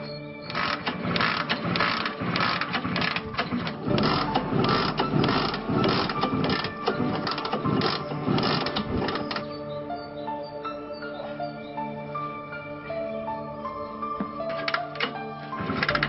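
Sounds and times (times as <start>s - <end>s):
mechanical clattering and ratcheting: 0.5s - 9.5s, 14.5s - 16.0s.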